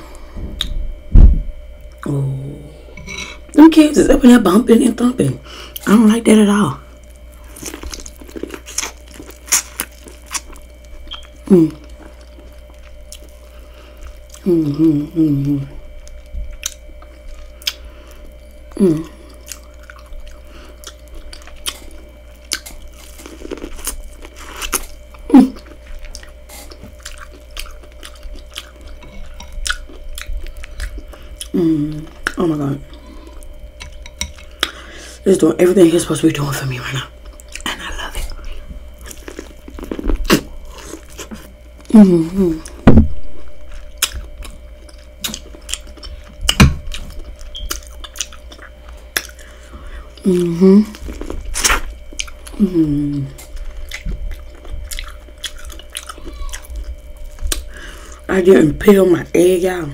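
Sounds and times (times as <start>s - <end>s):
person humming mmm: 1.9s - 3.5s, 11.1s - 12.1s, 14.3s - 16.0s, 18.7s - 19.6s, 24.6s - 25.8s, 31.4s - 33.4s, 39.3s - 44.1s, 49.9s - 51.8s, 52.4s - 53.6s, 56.1s - 56.7s
chewing corn cob: 7.3s - 14.8s, 16.0s - 34.8s, 37.2s - 41.9s, 44.0s - 49.6s, 50.2s - 52.6s, 53.2s - 57.7s.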